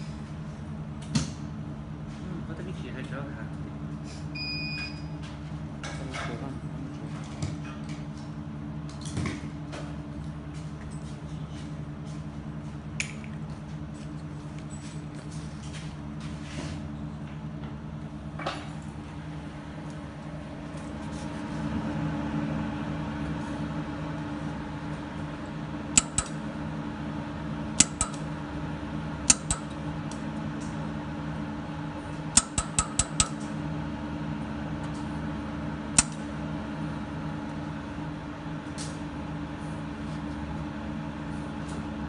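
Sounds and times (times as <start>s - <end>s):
steady machine hum: 0.0s - 42.0s
laser welder snapping: 26.0s - 26.4s, 27.8s - 28.3s, 29.3s - 29.8s, 32.3s - 33.5s, 36.0s - 36.3s.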